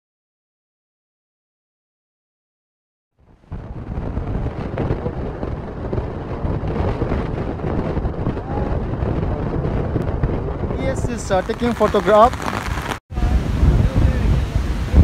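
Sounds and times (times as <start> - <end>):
wind buffeting microphone: 3.2 - 15.0
heavy rain: 10.8 - 15.0.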